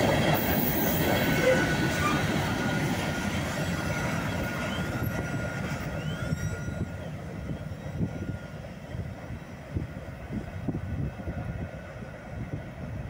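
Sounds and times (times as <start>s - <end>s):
train wheels rumbling on rail: 0.0s - 13.0s
faint wheel squeals: 4.0s - 8.6s.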